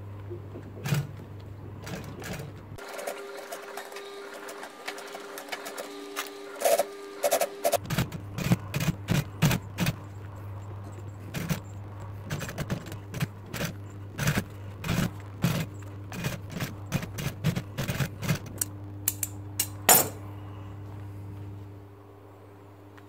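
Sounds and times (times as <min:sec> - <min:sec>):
sewing machine motor hum: 0:00.6 - 0:18.7
sewing machine needle strokes: 0:01.8 - 0:10.0.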